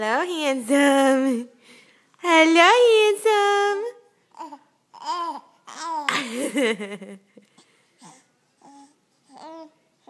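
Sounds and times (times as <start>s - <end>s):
faint breathy sounds: 1.5s - 2.2s, 7.4s - 10.0s
baby laughing and cooing: 4.4s - 7.0s.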